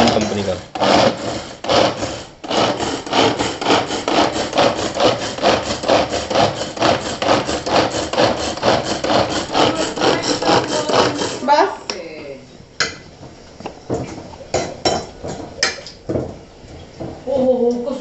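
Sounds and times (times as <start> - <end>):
chopper blades chopping onion: 0.0 - 11.7.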